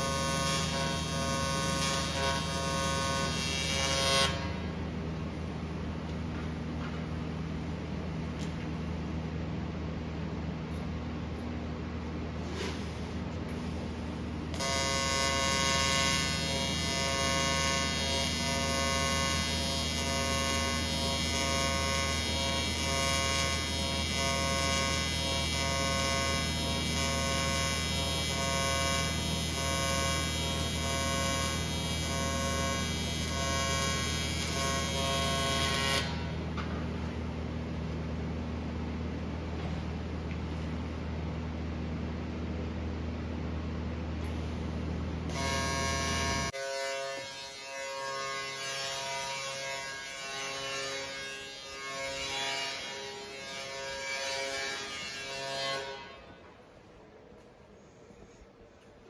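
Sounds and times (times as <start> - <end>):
welding arc buzzing: 0.0 - 5.0, 13.5 - 38.2, 44.2 - 56.4.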